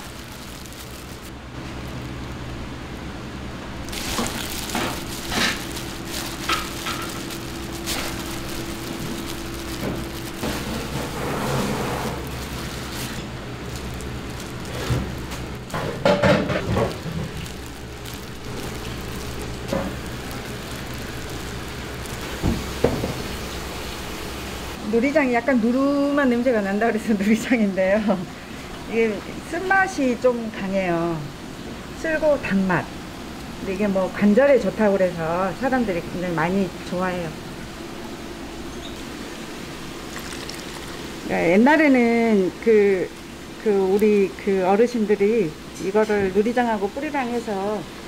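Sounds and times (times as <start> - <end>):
wet squelching of greens: 0.0 - 1.4, 3.8 - 24.0, 40.0 - 41.3
low steady hum: 0.0 - 48.0
kitchen clatter and knocks: 15.7 - 17.4, 22.4 - 23.3.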